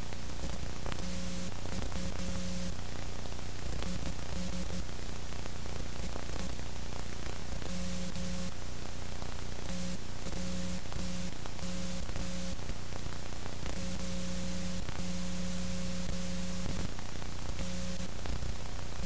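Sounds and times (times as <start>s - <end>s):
low electrical buzz: 0.0s - 19.0s
recording hiss: 0.0s - 19.0s.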